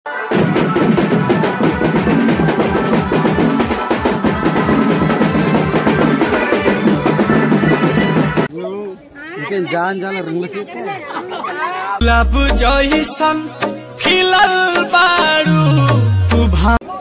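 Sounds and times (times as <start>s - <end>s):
fast drumming: 0.3s - 8.5s
high-pitched instrument melody: 12.0s - 16.8s.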